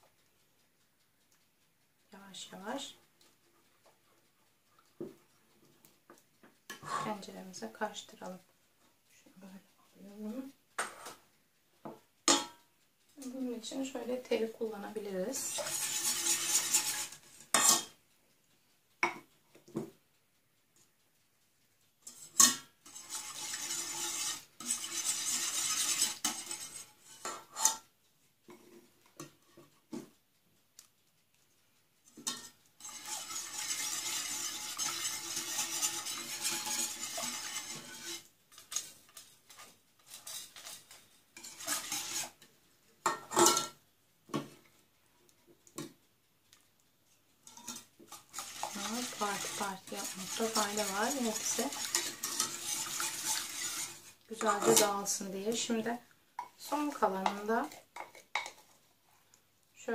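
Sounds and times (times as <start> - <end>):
utensils knocking on metal pot: 11.9 - 12.6, 15.4 - 18.0, 19.0 - 19.3, 22.1 - 27.8, 32.2 - 38.3, 41.4 - 42.3, 43.0 - 44.5, 47.5 - 55.2
wire whisk beating in metal pot: 12.2 - 18.0, 22.0 - 29.7, 32.0 - 44.6, 47.4 - 58.6
wooden spoon scraping: 15.3 - 17.9, 22.1 - 27.8, 32.0 - 43.7, 47.4 - 59.3.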